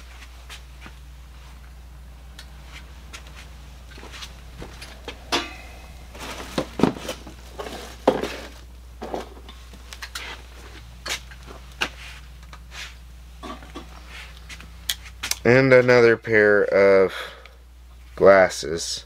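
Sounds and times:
steady low hum: 0.0 - 19.0
items rummaged in a box: 6.1 - 9.4.

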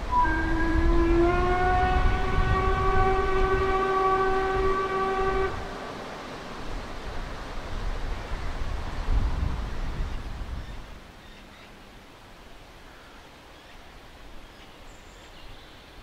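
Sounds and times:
steam locomotive whistle: 0.0 - 5.8.

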